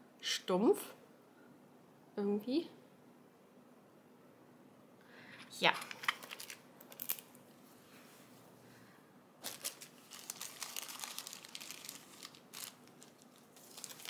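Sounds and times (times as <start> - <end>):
plastic bags crinkling: 5.6 - 7.4, 9.4 - 14.0.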